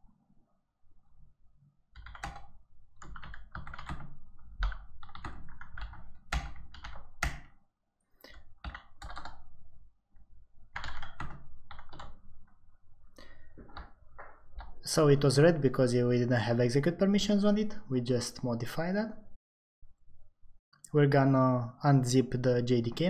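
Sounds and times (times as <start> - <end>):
keyboard typing: 2.0 - 7.6, 8.2 - 9.6, 10.7 - 12.5.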